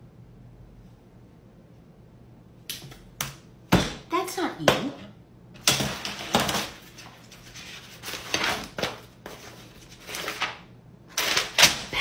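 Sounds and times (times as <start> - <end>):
paper rustling: 5.8 - 11.9.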